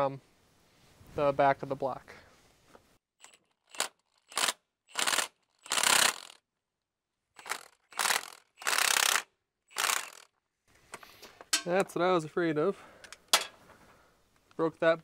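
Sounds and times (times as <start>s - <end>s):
impact wrench hammering: 3.2s - 6.4s, 7.4s - 10.2s.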